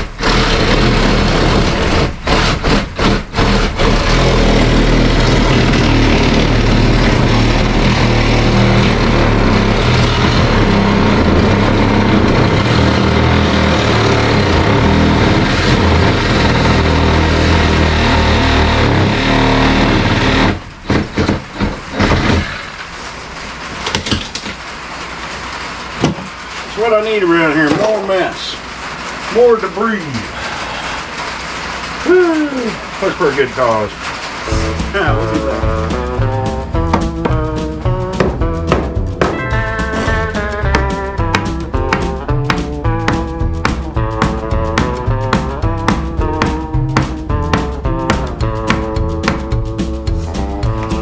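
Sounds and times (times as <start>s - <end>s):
reciprocating saw cutting wood: 0.0s - 22.8s, 34.3s - 50.3s.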